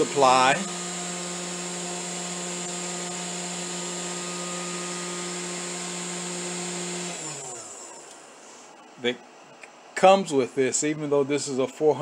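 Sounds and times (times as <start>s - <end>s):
spindle motor humming and whining: 0.0s - 8.9s.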